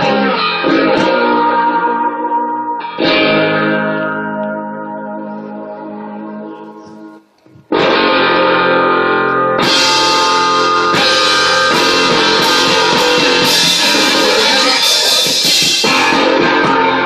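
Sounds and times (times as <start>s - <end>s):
live rock band playing: 0.0s - 4.8s, 7.7s - 17.0s.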